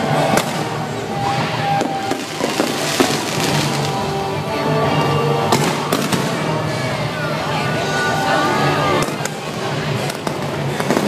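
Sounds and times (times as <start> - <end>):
fireworks bangs: 0.0 - 7.1, 9.0 - 11.0
fireworks crackling: 0.0 - 11.0
show music: 0.0 - 11.0.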